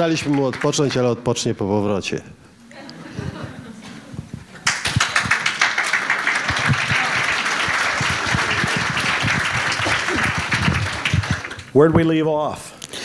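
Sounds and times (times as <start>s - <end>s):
people applauding: 0.0s - 1.2s, 4.6s - 11.9s.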